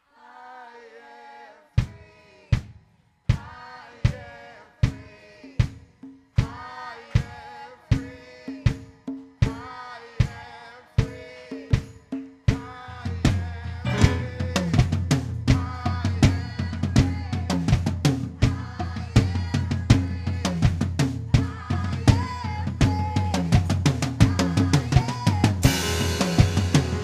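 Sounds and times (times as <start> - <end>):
bass: 13.2 - 27.0
worship band playing: 13.8 - 15.4, 25.6 - 27.0.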